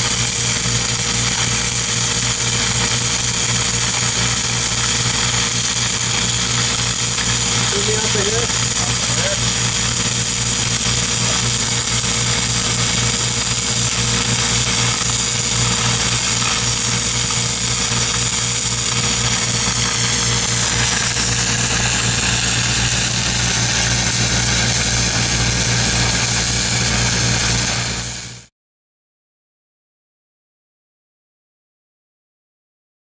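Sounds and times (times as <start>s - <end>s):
welding arcs crackling and hissing: 0.0s - 28.5s
steady low drone: 2.8s - 28.2s.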